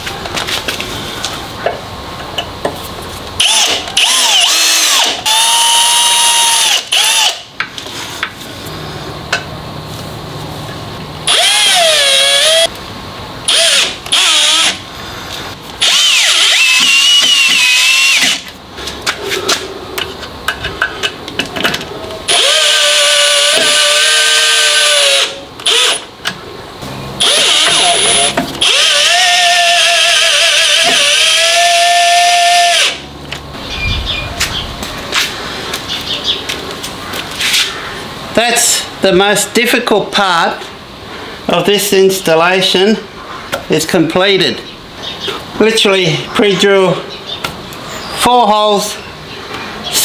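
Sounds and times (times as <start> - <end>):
cordless drill whining: 3.4 - 7.4, 11.3 - 12.7, 13.5 - 14.8, 15.8 - 18.4, 22.3 - 26.0, 27.2 - 33.0.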